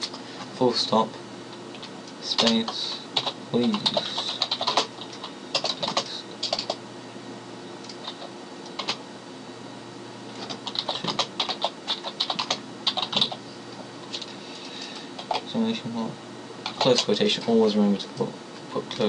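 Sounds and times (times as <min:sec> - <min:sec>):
computer keyboard typing: 0:01.7 - 0:06.8, 0:07.8 - 0:09.0, 0:10.4 - 0:13.4, 0:15.2 - 0:15.5, 0:16.6 - 0:17.4.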